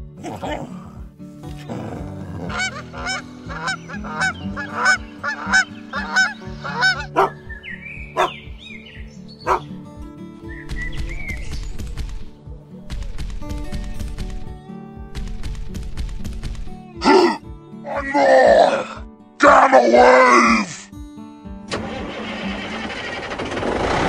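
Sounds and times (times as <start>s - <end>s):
background music: 0.0s - 23.9s
geese honking: 2.5s - 8.4s.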